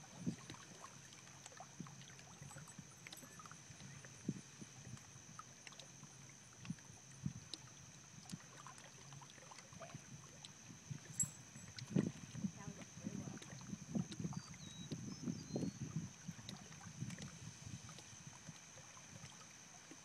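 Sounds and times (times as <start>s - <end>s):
small waves lapping against rocks: 0.0s - 14.8s.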